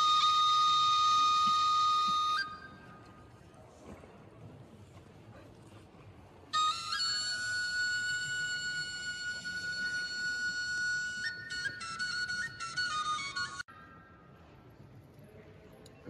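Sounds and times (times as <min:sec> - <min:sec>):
flute playing long high note: 0:00.0 - 0:03.0, 0:06.6 - 0:13.7
faint background noise: 0:00.0 - 0:16.0.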